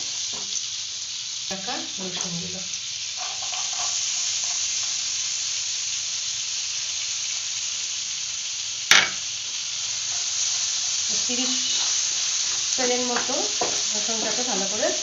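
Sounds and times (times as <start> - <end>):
garlic sizzling in frying pan: 0.0 - 15.0
sharp knock: 8.9 - 9.2.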